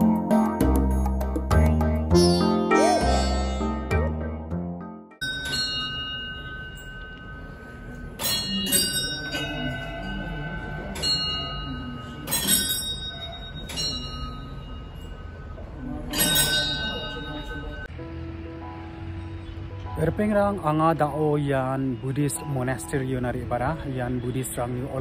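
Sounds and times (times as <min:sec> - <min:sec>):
prayer wheel bells ringing: 0:02.2 - 0:03.9, 0:05.2 - 0:18.0.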